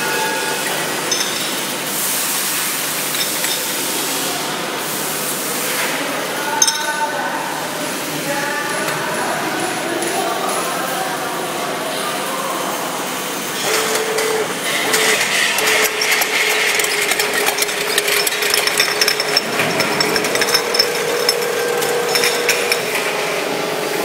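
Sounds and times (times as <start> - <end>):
capping mechanism clattering: 13.6 - 23.3
machine motor hum: 13.6 - 24.0.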